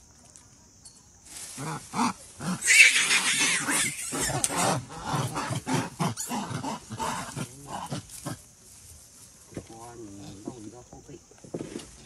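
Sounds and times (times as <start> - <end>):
monkeys squealing and grunting: 2.4 - 8.4.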